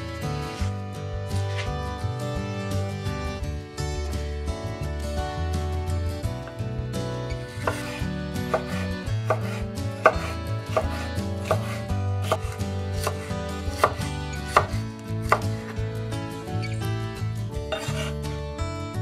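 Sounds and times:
knife chopping on wooden board: 7.4 - 15.8, 17.7 - 18.2.

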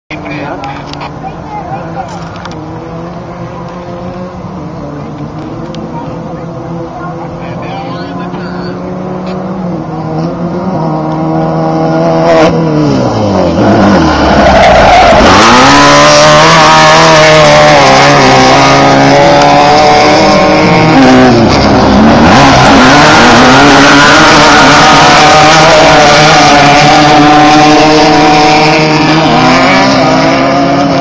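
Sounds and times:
race buggy engines revving: 0.1 - 31.0.

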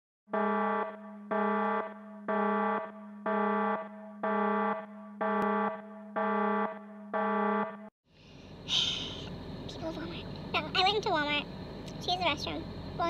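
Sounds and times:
electronic alarm buzzer beeping: 0.3 - 7.8.

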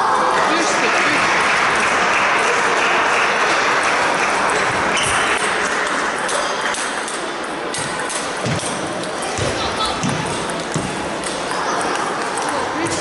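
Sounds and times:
din of busy hall: 0.0 - 13.0
table tennis balls clicking: 3.8 - 13.0.

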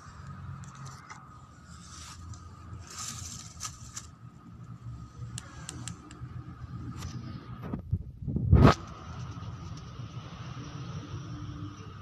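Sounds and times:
steady low rumble: 0.0 - 11.8
sharp clicks: 5.3 - 6.2.

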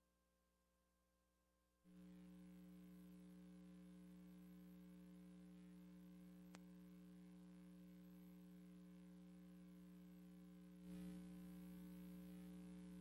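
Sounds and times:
electrical hum: 1.9 - 13.0
faint click: 6.4 - 6.8.

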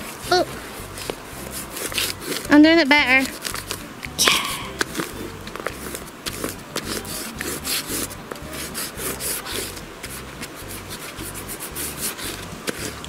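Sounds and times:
dry leaves rustling and scraping: 3.2 - 3.9.

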